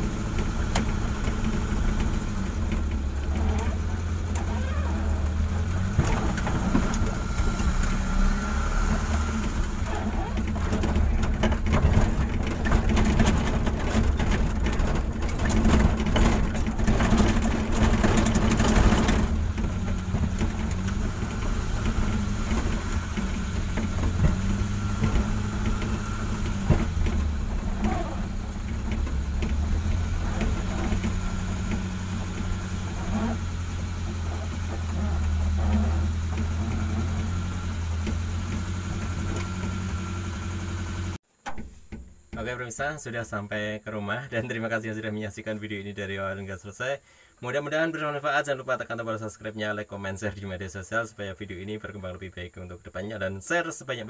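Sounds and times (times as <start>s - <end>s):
car engine running: 0.0s - 42.5s
rapid rattling and clattering: 0.0s - 42.5s.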